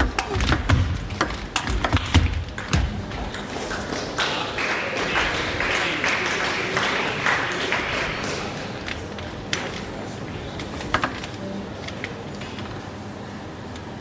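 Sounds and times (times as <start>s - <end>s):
audience applauding: 3.9s - 8.8s.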